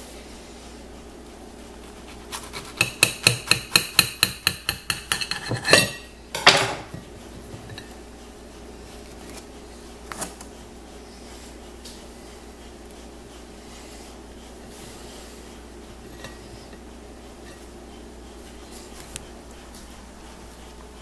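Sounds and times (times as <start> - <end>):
knife sawing through sandwich: 1.8 - 3.0
knife clinking on ceramic plate: 4.8 - 6.8.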